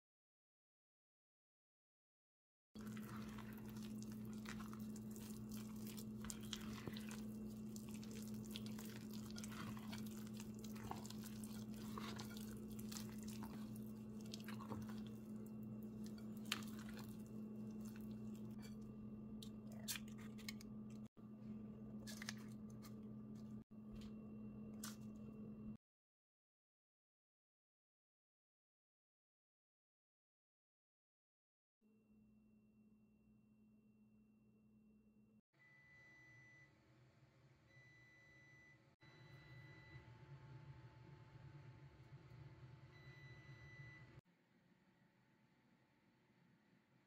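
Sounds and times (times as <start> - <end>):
spatula squishing batter: 2.8 - 18.9.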